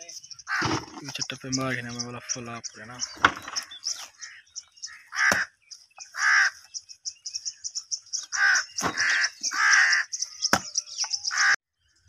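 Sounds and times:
high chirping: 0:00.0 - 0:12.0
crows cawing: 0:00.4 - 0:00.9, 0:03.6 - 0:06.8, 0:08.2 - 0:10.2, 0:11.2 - 0:11.6
mattock thudding on dry ground: 0:00.6 - 0:01.1, 0:08.8 - 0:09.2.

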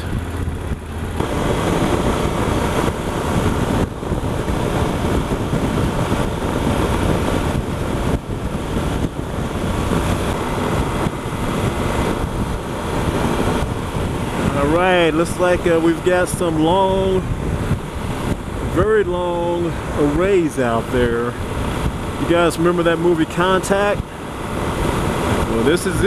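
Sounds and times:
motorcycle engine: 0:00.0 - 0:18.8
wind rushing over microphone: 0:00.0 - 0:26.0.

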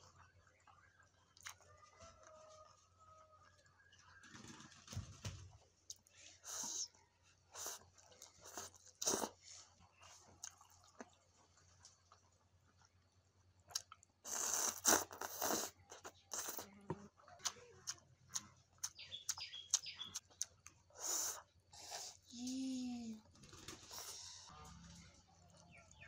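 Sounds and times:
chewing: 0:00.0 - 0:04.2, 0:05.8 - 0:22.1
slurping noodles: 0:07.5 - 0:09.5, 0:14.2 - 0:16.7
wet mouth clicks: 0:13.7 - 0:16.7.

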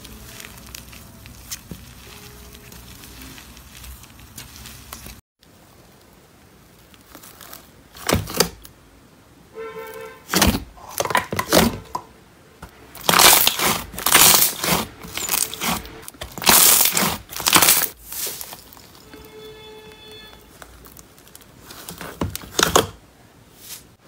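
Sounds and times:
slime crackling and popping: 0:00.0 - 0:05.2, 0:12.9 - 0:22.8.

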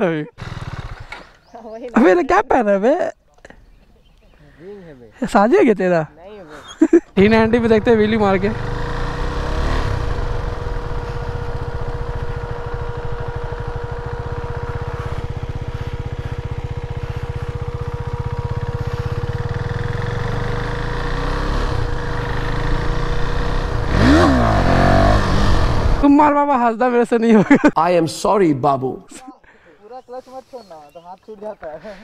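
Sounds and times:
motorcycle engine running: 0:00.3 - 0:02.1, 0:06.8 - 0:26.4.

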